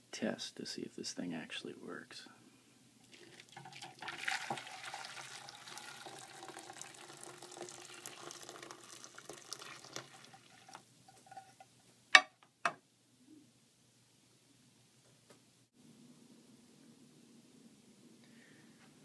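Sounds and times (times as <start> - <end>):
water splashing into metal basin: 3.3 - 10.8.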